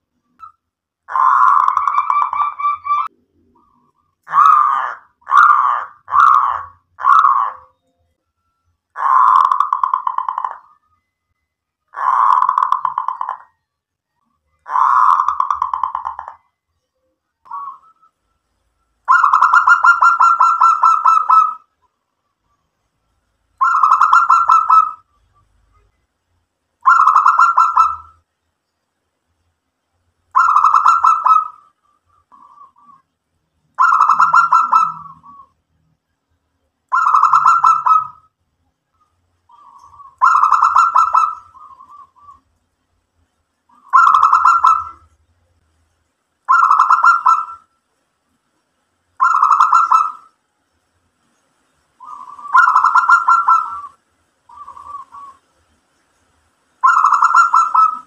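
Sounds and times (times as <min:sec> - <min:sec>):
dove cooing: 0:01.1 - 0:07.7, 0:09.0 - 0:10.8, 0:11.9 - 0:13.5, 0:14.6 - 0:16.4, 0:17.5 - 0:17.9, 0:19.1 - 0:21.7, 0:23.6 - 0:25.2, 0:26.8 - 0:28.2, 0:30.4 - 0:33.0, 0:33.8 - 0:35.6, 0:36.9 - 0:38.2, 0:39.5 - 0:42.4, 0:43.7 - 0:45.0, 0:46.5 - 0:47.6, 0:49.2 - 0:50.3, 0:52.0 - 0:55.4, 0:56.8 - 0:58.0.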